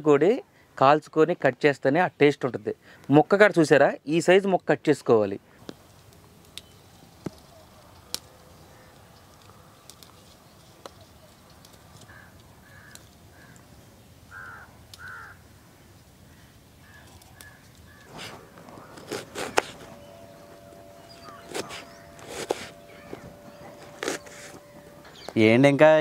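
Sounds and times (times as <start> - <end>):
bird calling: 14.3 - 15.4, 16.3 - 26.0.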